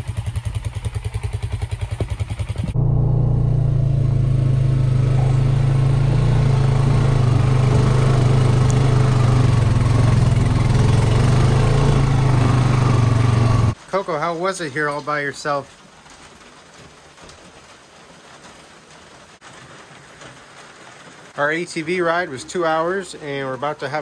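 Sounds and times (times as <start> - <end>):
atv engine running: 0.0 - 13.8.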